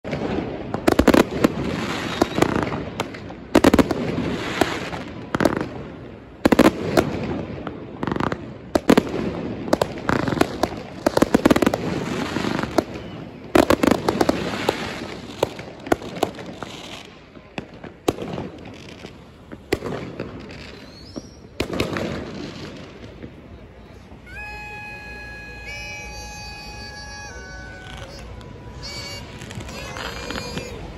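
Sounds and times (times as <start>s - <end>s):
fireworks bangs and crackles: 0.0s - 30.9s
rumble of distant fireworks: 0.0s - 30.9s.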